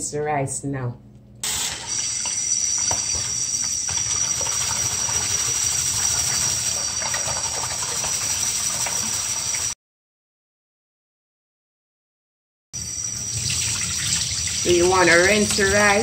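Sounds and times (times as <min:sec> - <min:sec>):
tap running into bowl: 0:01.9 - 0:09.6.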